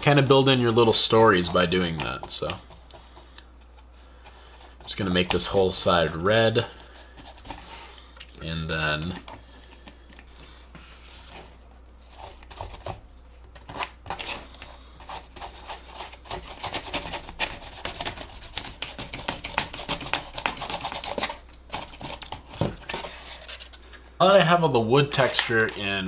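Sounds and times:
scratchy brush strokes: 0.0 - 8.0
steady low hum: 0.0 - 26.0.

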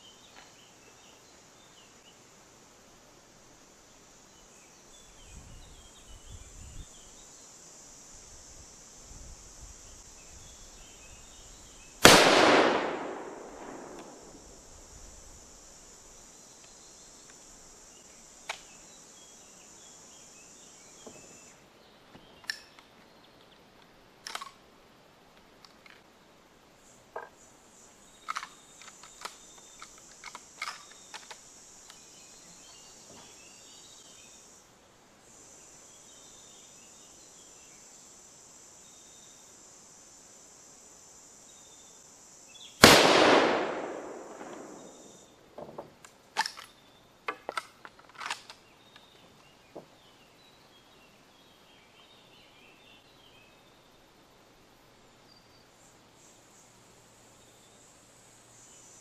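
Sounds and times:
rifle shot: 12.0 - 14.4, 42.8 - 45.2
rifle action metallic clicks: 24.2 - 24.6, 28.3 - 31.4, 46.0 - 46.8, 47.4 - 48.6.

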